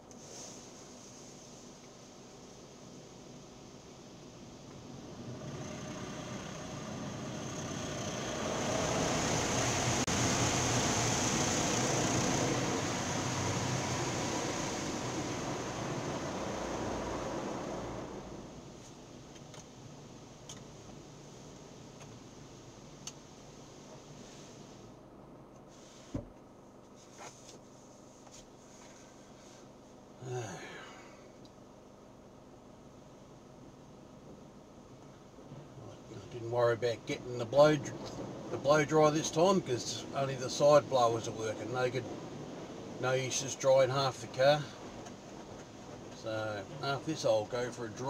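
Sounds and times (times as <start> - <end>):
car wash water spraying: 0.1 - 19.4, 36.4 - 48.0
low machinery hum: 0.9 - 25.6
thump: 26.1 - 26.3.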